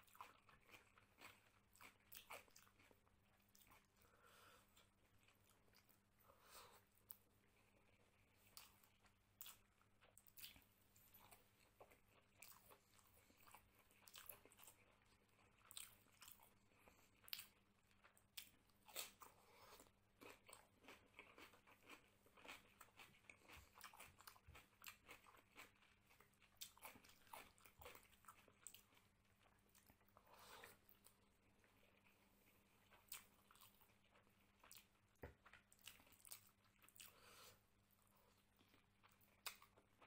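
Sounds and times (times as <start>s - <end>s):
person chewing: 0.0s - 40.0s.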